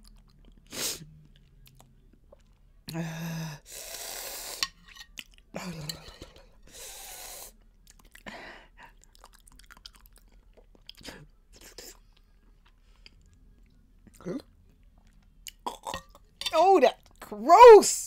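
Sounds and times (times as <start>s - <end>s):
chewing and mouth noises: 0.0s - 3.0s, 5.0s - 6.2s, 7.5s - 17.3s
loud hissing breaths: 3.6s - 4.7s, 6.7s - 7.5s.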